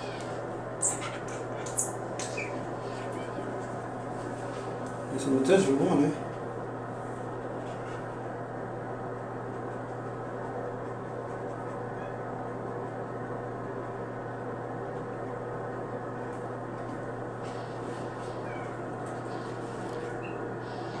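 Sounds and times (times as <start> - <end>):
cats meowing faintly: 0.0 - 1.6, 17.9 - 21.0
steady low hum: 0.0 - 21.0.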